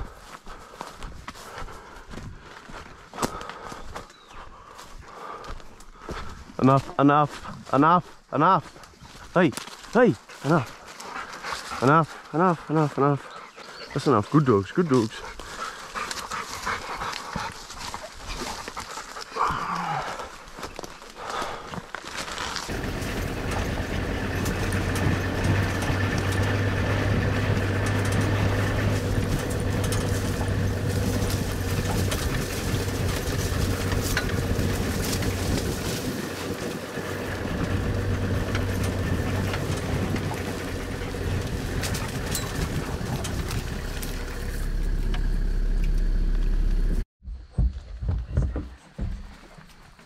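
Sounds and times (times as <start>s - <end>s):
vehicle engine and road noise: 22.2s - 47.1s.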